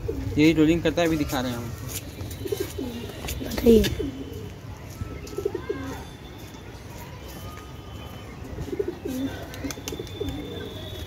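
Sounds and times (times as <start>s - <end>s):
pigeons cooing: 0.0s - 0.5s, 2.4s - 4.5s, 8.7s - 10.9s.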